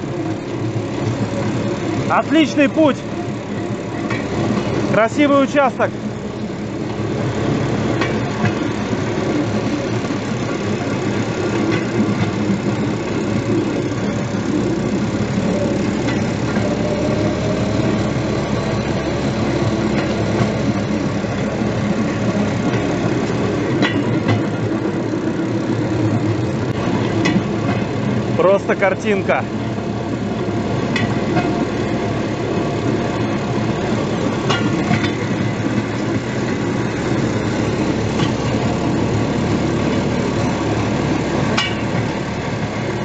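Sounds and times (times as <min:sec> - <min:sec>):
engine drone: 0:00.0 - 0:43.0
wheels rolling on rails: 0:00.0 - 0:43.0
faint click over rail joints: 0:04.0 - 0:04.7, 0:11.5 - 0:12.4, 0:21.3 - 0:24.6, 0:30.9 - 0:31.6, 0:34.4 - 0:36.1, 0:41.5 - 0:42.2.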